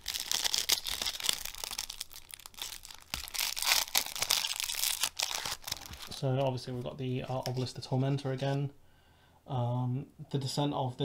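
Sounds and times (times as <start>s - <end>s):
plastic wrapping crinkling and tearing: 0.0s - 6.2s.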